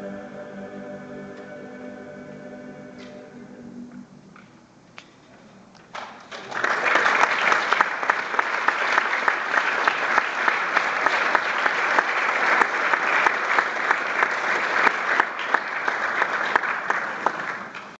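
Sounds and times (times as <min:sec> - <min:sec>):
audience applauding: 0:05.9 - 0:18.0.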